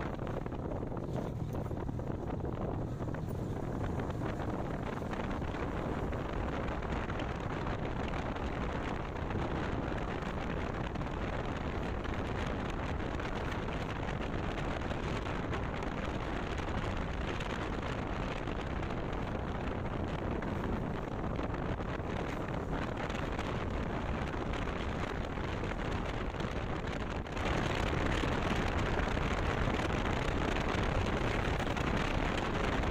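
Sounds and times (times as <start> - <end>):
road noise: 0.0 - 32.9
wind rushing over microphone: 0.0 - 32.9.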